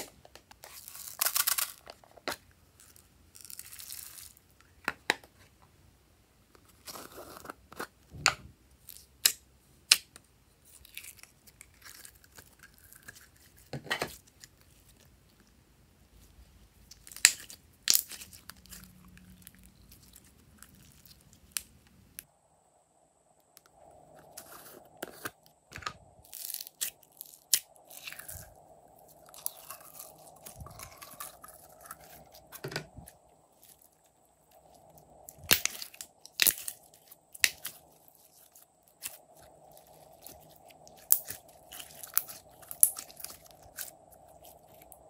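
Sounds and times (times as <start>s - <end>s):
slime tearing and crackling: 0.0s - 2.0s, 2.8s - 4.4s, 26.2s - 32.6s, 33.5s - 45.0s.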